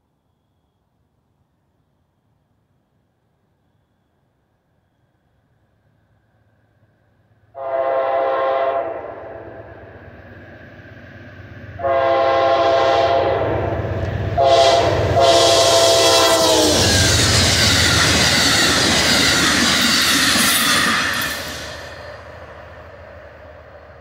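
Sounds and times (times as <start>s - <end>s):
train passing with rush: 5.7s - 24.0s
locomotive horn blasts: 7.6s - 9.4s, 11.8s - 17.0s
wheels clacking over rail joints: 16.4s - 23.0s.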